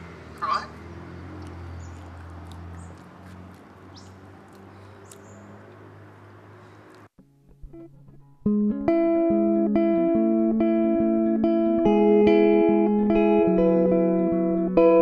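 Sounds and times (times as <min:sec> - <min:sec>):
small birds chirping: 0:00.0 - 0:07.1
plucked guitar notes: 0:07.2 - 0:15.0.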